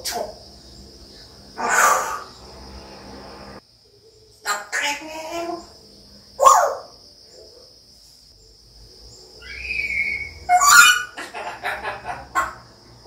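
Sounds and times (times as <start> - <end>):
parrot vocalizing: 1.6 - 2.7, 4.4 - 5.7, 9.4 - 12.8
parrot whistling: 9.4 - 11.2
parrot imitating laughter: 10.5 - 12.6.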